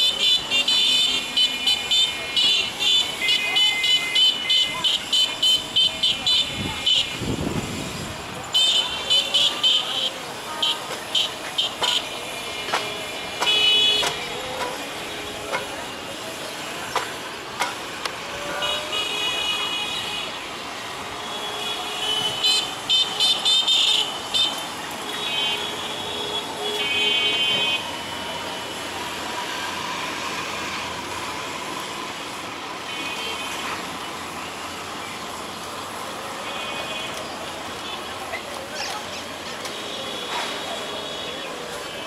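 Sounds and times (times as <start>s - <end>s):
vehicle horns honking: 0.0s - 7.9s, 8.5s - 15.7s, 18.3s - 28.1s, 32.8s - 33.9s
outdoor traffic hum: 0.0s - 42.0s.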